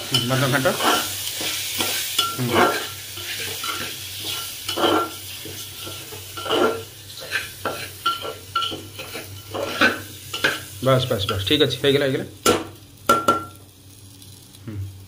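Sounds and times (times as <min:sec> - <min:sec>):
food sizzling in oil: 0:00.0 - 0:15.0
spoon scraping metal pot: 0:00.1 - 0:10.6.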